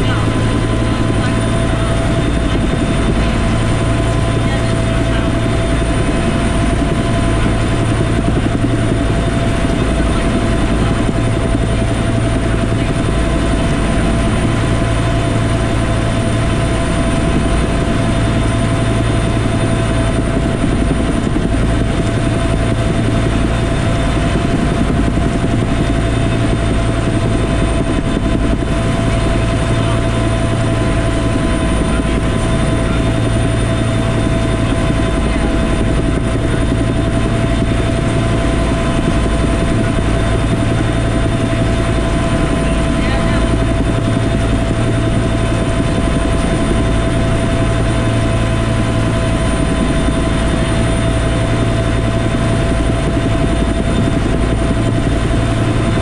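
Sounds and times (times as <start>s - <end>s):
helicopter cabin drone: 0.0s - 56.0s.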